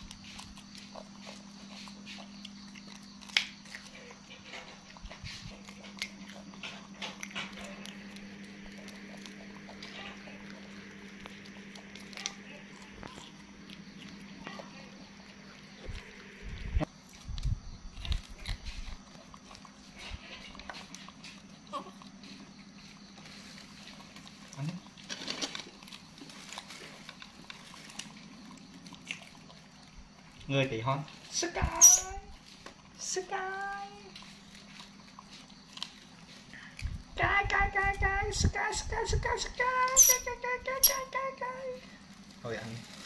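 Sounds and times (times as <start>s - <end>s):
monkeys chewing bean pods: 0.0s - 16.5s, 17.1s - 37.0s
steady low hum: 0.0s - 43.0s.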